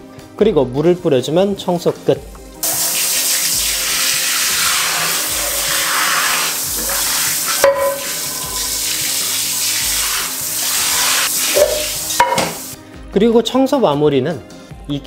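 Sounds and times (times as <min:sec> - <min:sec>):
water spraying into skillet: 0:02.6 - 0:12.8.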